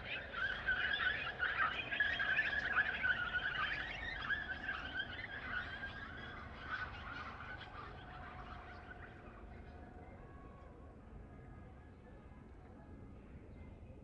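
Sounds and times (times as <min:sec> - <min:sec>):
flock of birds chirping: 0:00.0 - 0:09.4.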